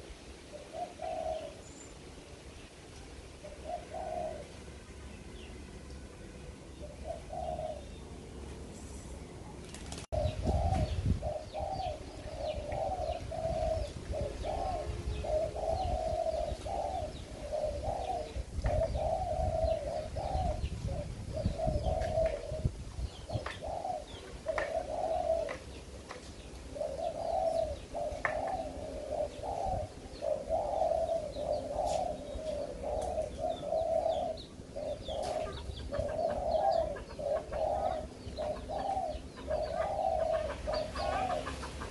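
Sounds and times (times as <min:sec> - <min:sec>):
doves cooing: 0:00.0 - 0:01.7, 0:03.2 - 0:04.7, 0:06.8 - 0:08.1, 0:09.6 - 0:41.9.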